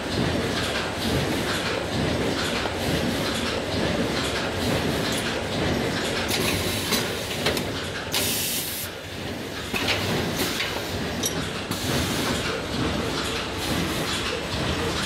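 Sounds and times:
machine rattling and clicking: 0:00.0 - 0:15.0
pneumatic hiss: 0:08.1 - 0:08.9.

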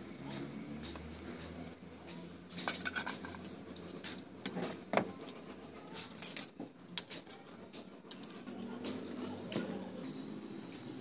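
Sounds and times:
small metal parts clinking: 0:02.5 - 0:08.6.

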